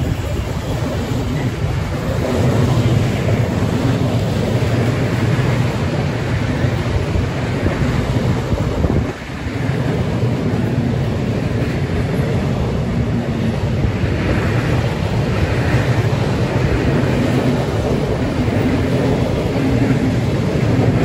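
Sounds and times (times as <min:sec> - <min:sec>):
rumble of train wheels on rail: 0:00.0 - 0:21.0
wind buffeting microphone: 0:00.0 - 0:21.0.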